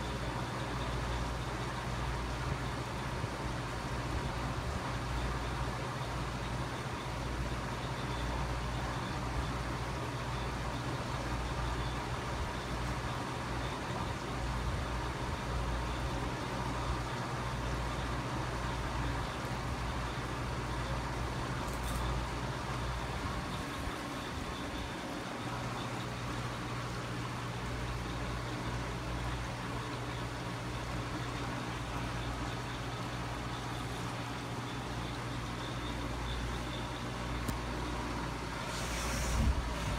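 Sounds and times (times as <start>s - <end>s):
aquarium filter humming: 0.0s - 39.9s
water return hissing: 17.3s - 39.9s.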